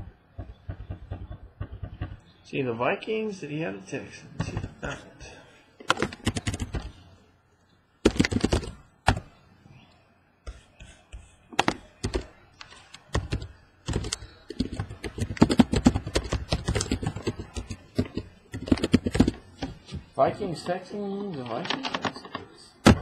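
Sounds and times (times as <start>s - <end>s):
typing on laptop keyboard: 5.8s - 7.0s, 8.0s - 9.3s, 10.5s - 19.8s, 20.7s - 23.0s.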